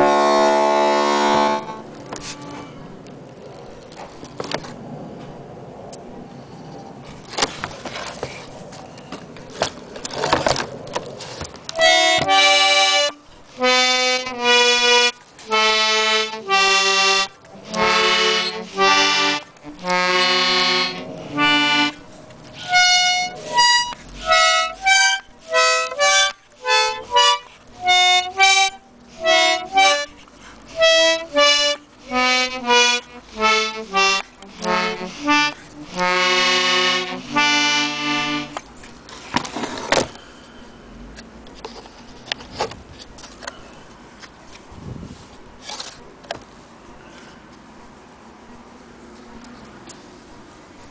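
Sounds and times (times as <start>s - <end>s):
button accordion notes and chords: 0.0s - 2.7s, 11.7s - 38.7s
rustling handling noise: 6.8s - 13.5s, 38.4s - 40.7s, 41.5s - 50.9s.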